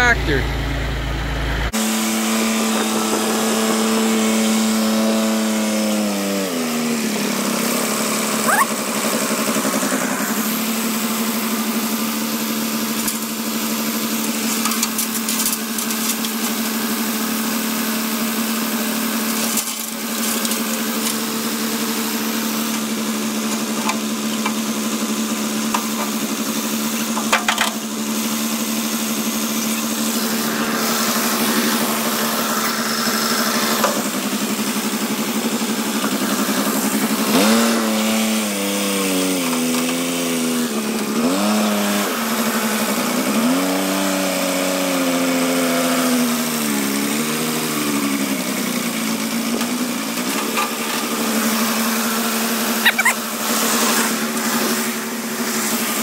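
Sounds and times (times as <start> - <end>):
tractor engine idling: 0.0 - 1.7.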